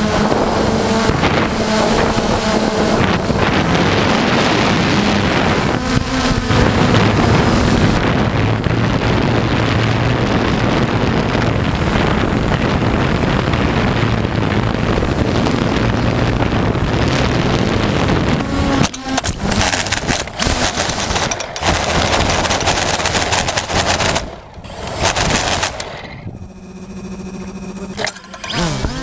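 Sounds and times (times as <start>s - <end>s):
quadcopter flying: 0.0s - 29.0s
steady hum: 0.0s - 29.0s
wind on microphone: 0.0s - 29.0s
propellers clattering on ground: 14.8s - 26.3s, 27.7s - 29.0s.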